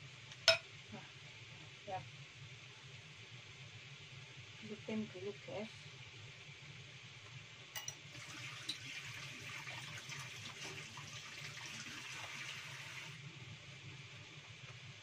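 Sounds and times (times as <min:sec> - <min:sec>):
tap water running into sink: 0:08.1 - 0:13.2.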